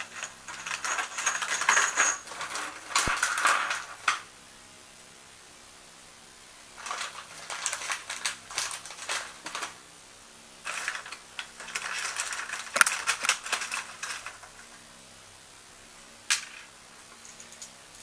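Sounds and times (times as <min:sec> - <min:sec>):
metal parts clinking: 0:00.0 - 0:04.2, 0:10.7 - 0:14.7.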